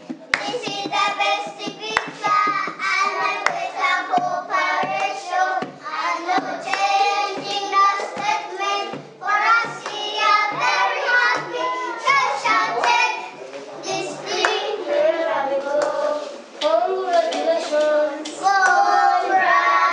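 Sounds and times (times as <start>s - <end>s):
hand drum beating: 0.0s - 12.8s
children singing: 0.3s - 19.9s.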